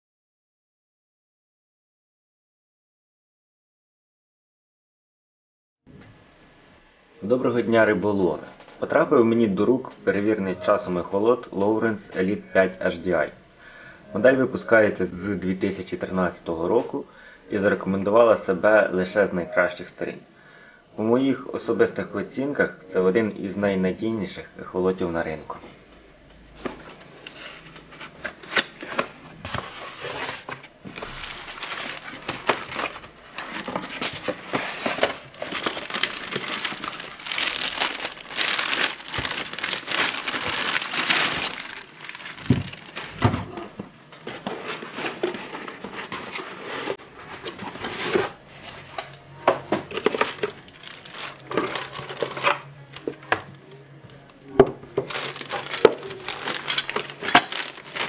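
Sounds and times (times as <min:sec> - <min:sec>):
plastic bag crinkling: 0:28.6 - 0:43.6, 0:49.9 - 0:52.7, 0:55.0 - 0:58.0.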